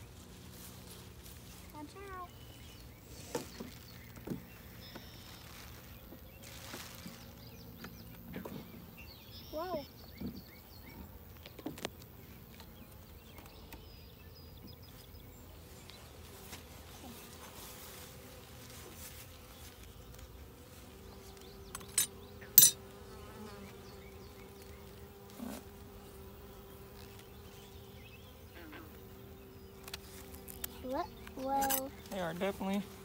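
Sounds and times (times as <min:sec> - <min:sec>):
bees buzzing: 0:00.0 - 0:33.0
sharp clicks of hive frames: 0:29.7 - 0:32.2.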